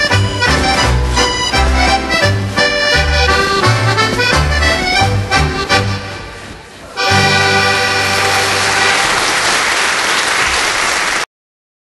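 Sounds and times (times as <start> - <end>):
accordion music: 0.0 - 9.3
loud applause: 7.4 - 11.3.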